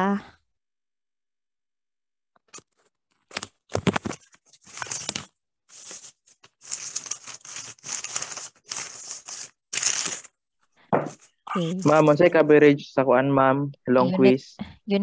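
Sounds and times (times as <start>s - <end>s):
rustling and crinkling: 2.5s - 10.3s.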